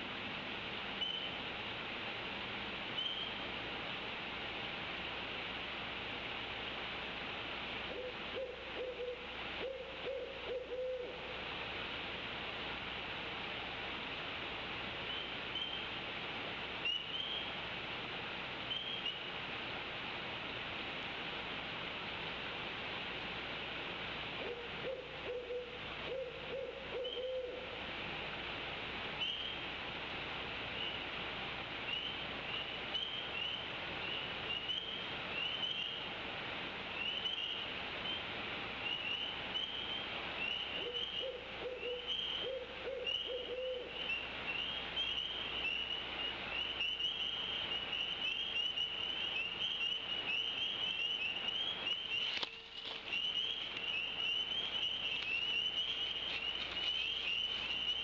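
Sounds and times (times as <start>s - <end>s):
owl hooting: 7.9s - 11.4s, 24.3s - 27.8s, 38.9s - 58.0s
high chirping chorus: 46.6s - 58.0s.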